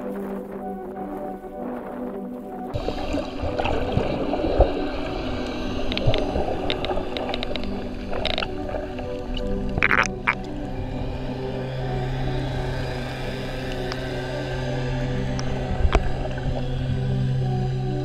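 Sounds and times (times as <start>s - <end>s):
underwater water wash: 0.0s - 18.0s
dolphin echolocation clicks: 5.9s - 10.5s, 13.7s - 14.0s.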